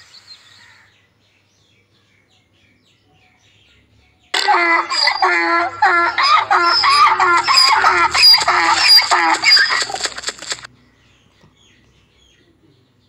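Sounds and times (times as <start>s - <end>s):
donkey braying: 4.4s - 10.7s.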